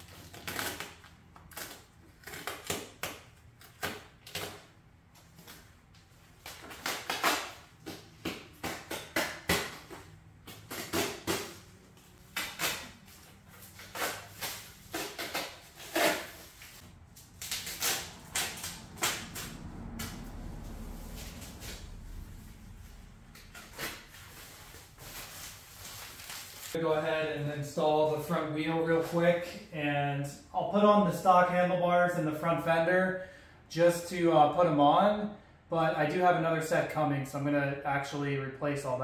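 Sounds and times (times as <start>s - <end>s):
plastic film tearing and crinkling: 0.0s - 9.9s, 10.5s - 20.3s, 23.3s - 26.8s.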